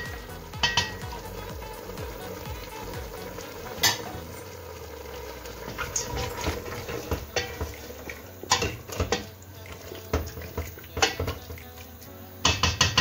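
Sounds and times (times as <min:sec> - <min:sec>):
food sizzling in oil: 0:00.0 - 0:13.0
spoon scraping and tapping pot: 0:08.4 - 0:11.7, 0:12.4 - 0:13.0
wooden spoon knocking on pot: 0:10.1 - 0:11.6, 0:12.4 - 0:13.0.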